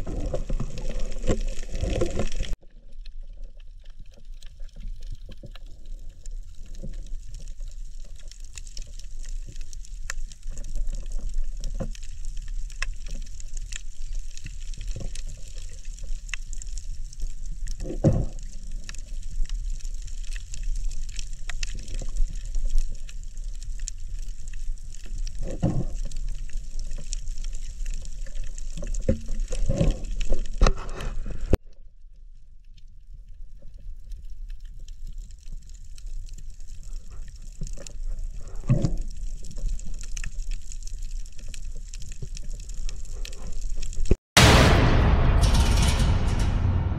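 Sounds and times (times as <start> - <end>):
low thumps: 44.4 - 46.9.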